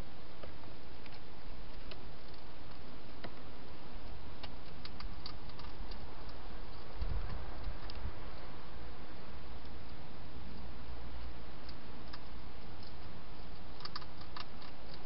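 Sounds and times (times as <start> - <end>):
hedgehog chewing clicks: 4.0 - 8.5, 9.6 - 15.0.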